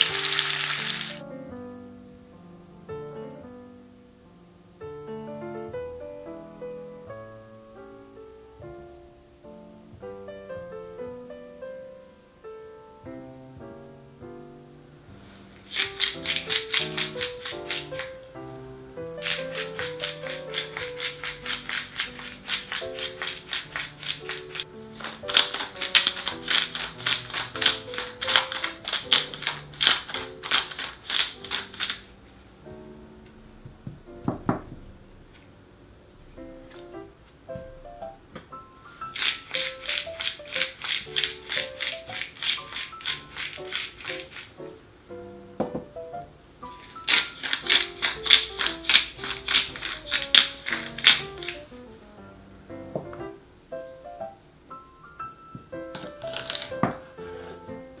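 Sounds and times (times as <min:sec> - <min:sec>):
pepper mill grinding: 0:00.0 - 0:01.2, 0:15.2 - 0:18.3, 0:19.1 - 0:32.2, 0:38.9 - 0:44.8, 0:46.6 - 0:51.9, 0:55.9 - 0:57.0
background music: 0:00.0 - 0:35.0, 0:36.4 - 0:58.0
gentle piano melody: 0:00.0 - 0:58.0.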